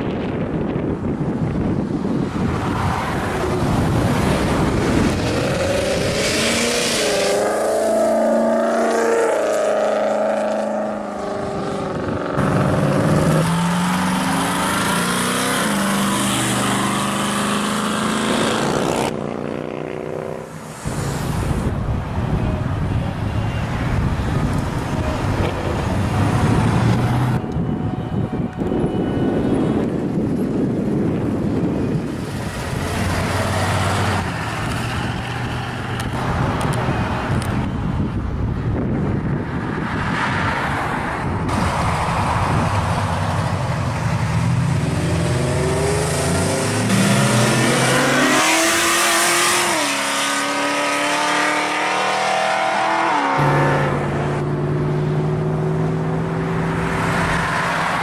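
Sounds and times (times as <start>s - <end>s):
road and wind noise: 0.0s - 58.0s
car engines revving past: 2.0s - 21.7s, 31.6s - 37.6s, 38.8s - 58.0s.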